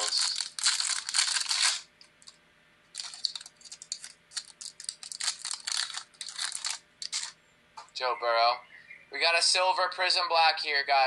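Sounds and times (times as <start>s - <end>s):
foil wrapper crinkling and tearing: 0.0s - 7.4s.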